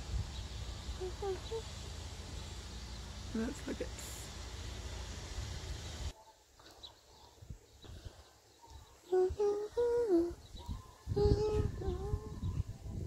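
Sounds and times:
low rumbling on microphone: 0.0s - 6.1s, 9.1s - 13.0s
person humming: 1.0s - 1.7s, 9.1s - 10.4s, 11.1s - 12.4s.

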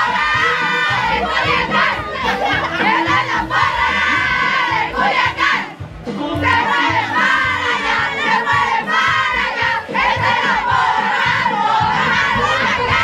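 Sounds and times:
women chanting a cheer: 0.0s - 13.0s.

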